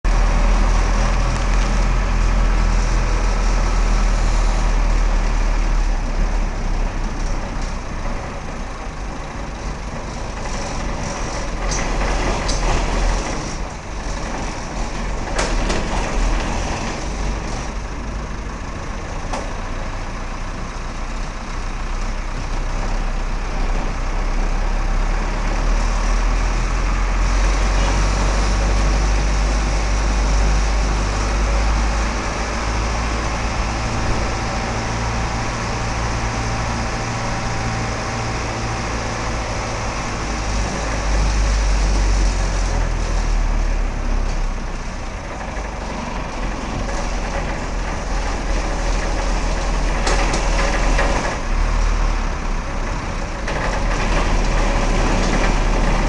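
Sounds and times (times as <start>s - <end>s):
bus engine hum: 0.0s - 56.0s
sharp knocks and rattles: 45.2s - 51.9s, 52.9s - 56.0s.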